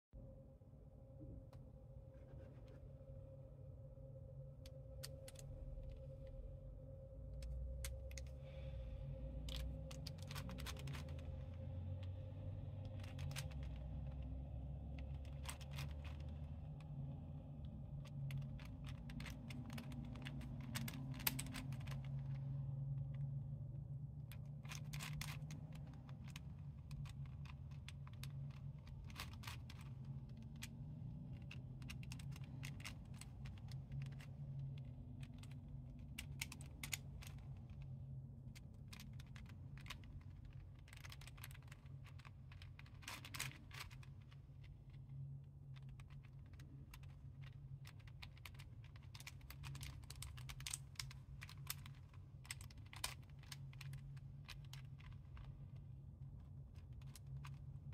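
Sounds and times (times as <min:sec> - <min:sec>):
steady low hum: 0:00.1 - 0:57.9
plastic puzzle pieces clicking: 0:07.4 - 0:23.4, 0:24.2 - 0:57.9.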